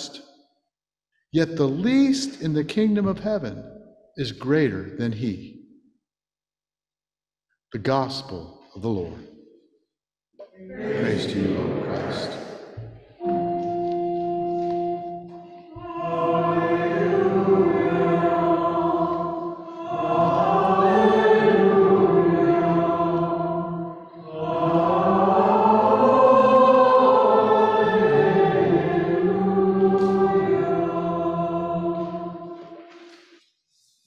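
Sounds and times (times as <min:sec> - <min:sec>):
voices singing church music: 0:00.0 - 0:00.3, 0:10.4 - 0:34.0.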